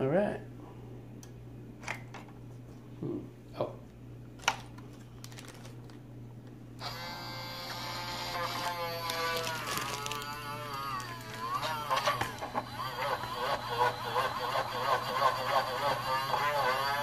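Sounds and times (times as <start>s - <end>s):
small electric motor whining: 6.8s - 17.0s.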